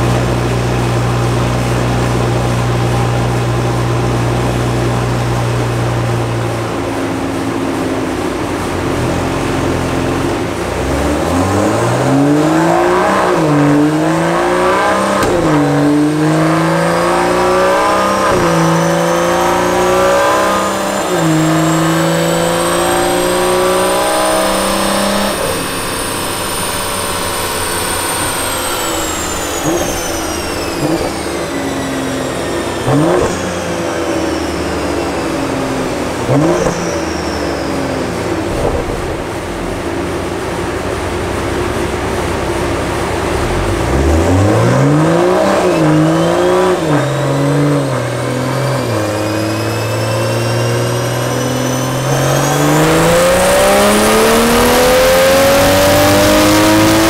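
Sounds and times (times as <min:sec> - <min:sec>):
car engine idling and revving: 0:00.0 - 0:57.0
high turbo whine: 0:00.0 - 0:57.0.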